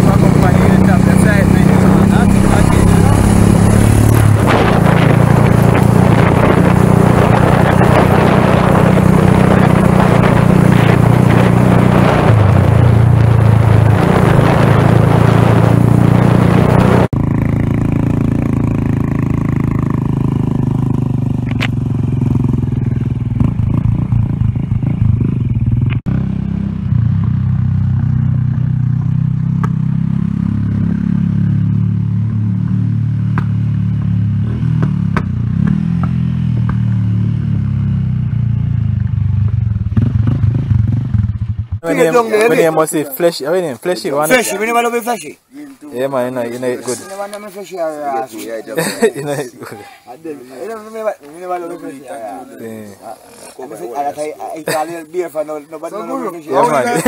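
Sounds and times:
small motorcycle engine running: 0:00.0 - 0:12.5
wind noise on microphone: 0:01.6 - 0:17.2.

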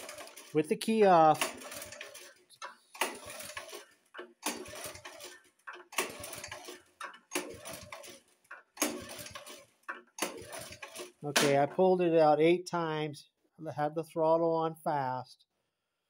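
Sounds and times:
pull-starter cord whirring: 0:01.3 - 0:08.0.

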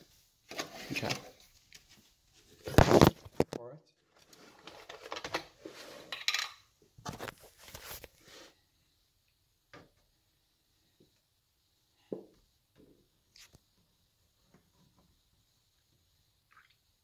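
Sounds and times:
kitchen items rustling and clattering: 0:00.4 - 0:08.5.

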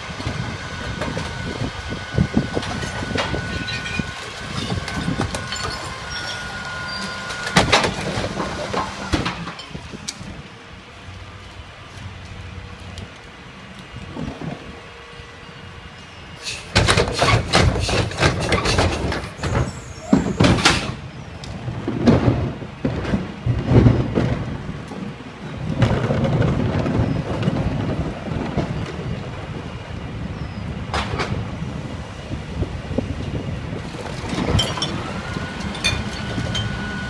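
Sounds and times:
carts knocking and banging: 0:02.6 - 0:09.8, 0:16.4 - 0:21.0, 0:21.6 - 0:29.2.

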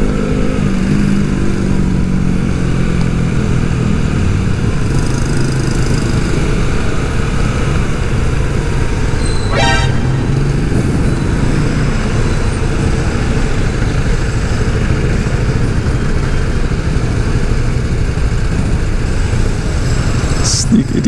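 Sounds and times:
scooter engine and road rumble: 0:00.0 - 0:09.5, 0:10.3 - 0:21.0
short horn beep: 0:09.2 - 0:11.2.

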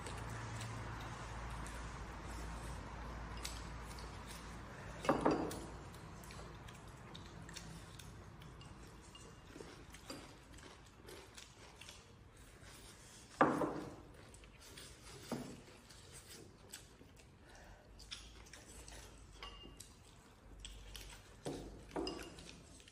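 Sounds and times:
chopsticks clinking on bowls: 0:03.2 - 0:12.9, 0:18.0 - 0:22.9.

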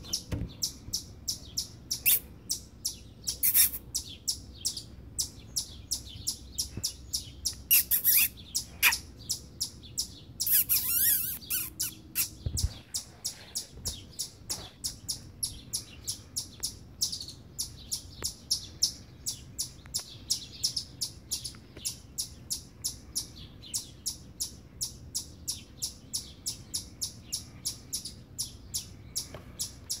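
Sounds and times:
chipmunk warbling calls: 0:00.0 - 0:04.8, 0:07.4 - 0:14.4
chipmunk alarm chips: 0:00.0 - 0:30.0.

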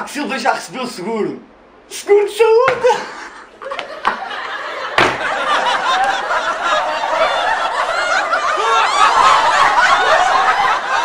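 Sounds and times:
crowd laughing: 0:03.0 - 0:11.0.

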